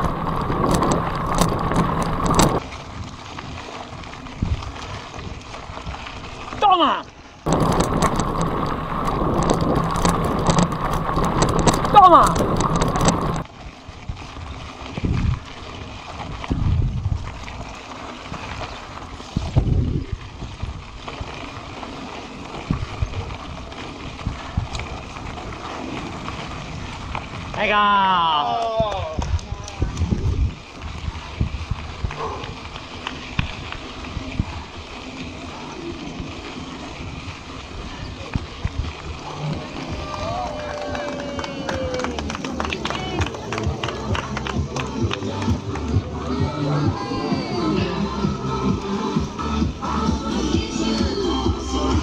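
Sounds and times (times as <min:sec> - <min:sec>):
wind buffeting microphone: 0:00.0 - 0:06.6, 0:07.4 - 0:48.4
bike rattling and clicking: 0:00.0 - 0:52.0
tyres on gravel path: 0:00.0 - 0:52.0
person speaking: 0:11.8 - 0:12.5.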